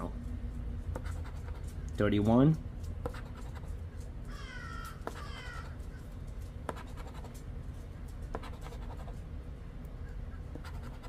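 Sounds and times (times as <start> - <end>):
coin scratching lottery ticket: 1.0 - 1.7, 3.0 - 3.8, 6.7 - 7.4, 8.3 - 9.2, 10.6 - 11.0.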